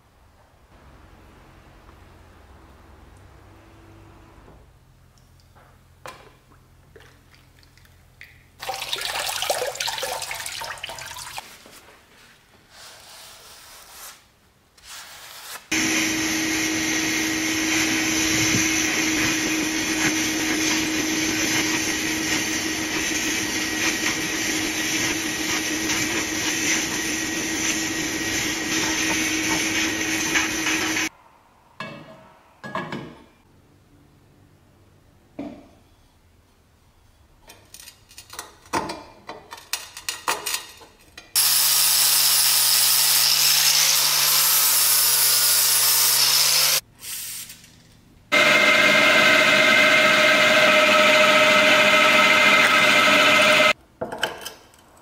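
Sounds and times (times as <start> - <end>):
steady hum: 0.6 - 5.0
liquid splashing: 6.6 - 11.5.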